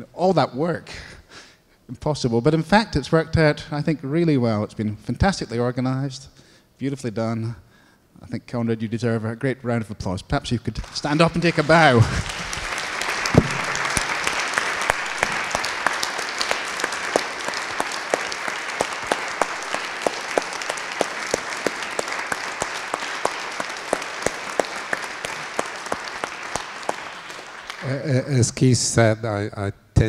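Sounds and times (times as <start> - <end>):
audience applauding: 10.7 - 28.4.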